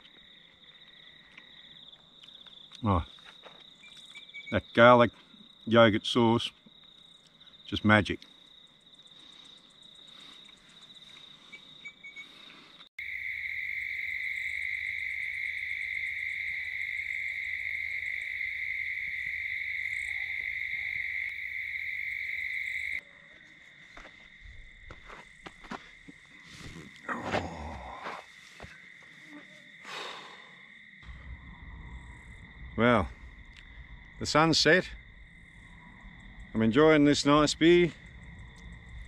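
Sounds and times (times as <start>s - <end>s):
crickets trilling: 0.0s - 39.0s
lower-pitched insect trill: 0.0s - 39.0s.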